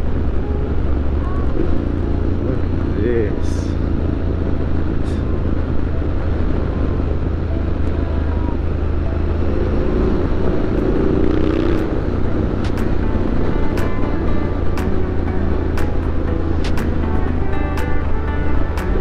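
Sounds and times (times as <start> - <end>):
motorcycle engine running: 8.3 - 19.0.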